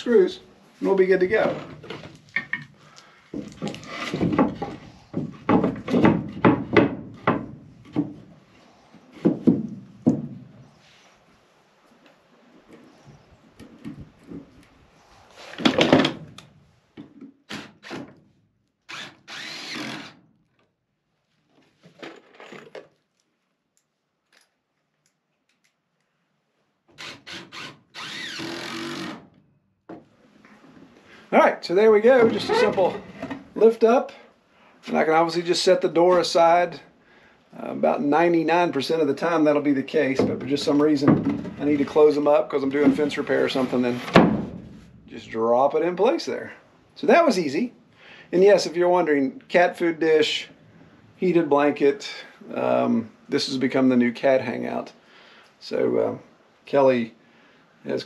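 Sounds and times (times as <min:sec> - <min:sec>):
wooden knocks and clunks: 0:01.2 - 0:08.4, 0:09.1 - 0:10.7, 0:13.6 - 0:14.6, 0:15.6 - 0:16.4, 0:29.9 - 0:30.1, 0:32.1 - 0:33.6, 0:40.1 - 0:42.0, 0:42.6 - 0:45.0
cordless drill driving screw: 0:18.9 - 0:20.2, 0:27.0 - 0:29.2.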